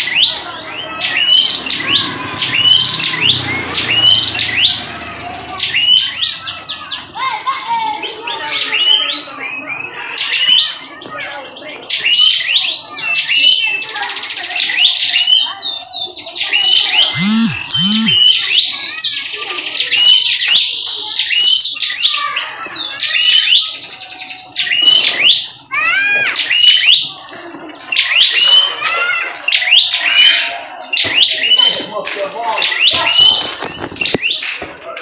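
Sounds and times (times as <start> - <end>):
bird singing rapid chirps and trills: 0.0 - 7.1, 7.8 - 34.5
short low bird calls: 17.0 - 18.6.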